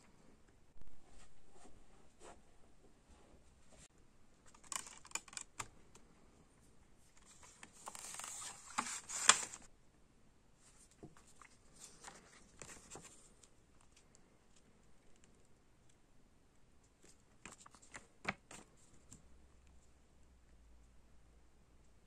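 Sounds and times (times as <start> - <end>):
paper booklet handling: 7.2 - 9.7, 11.1 - 13.3.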